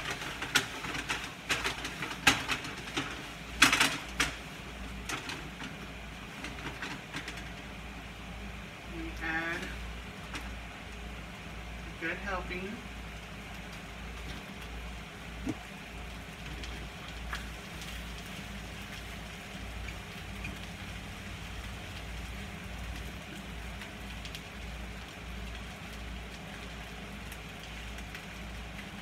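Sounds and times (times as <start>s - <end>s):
oil sizzling in a skillet: 12.8s - 29.0s.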